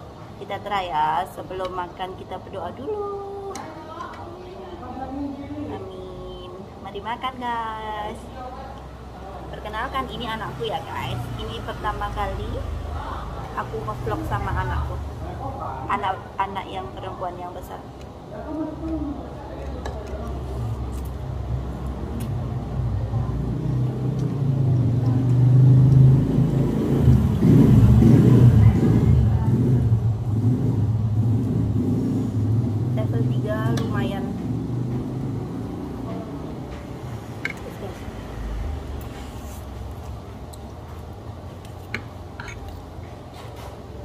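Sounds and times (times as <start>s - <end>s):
vehicle engine rumbling: 17.6s - 44.0s.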